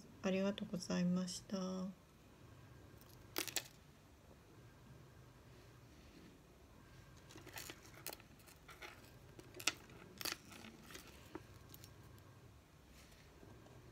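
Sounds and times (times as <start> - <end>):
ribbon rustling: 7.2 - 12.2.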